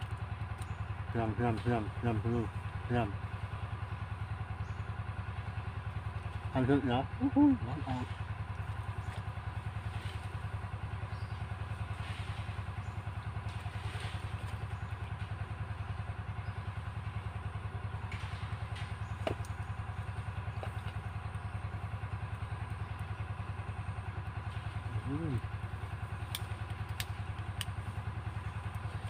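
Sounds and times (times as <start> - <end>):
small engine idling: 0.0 - 29.0.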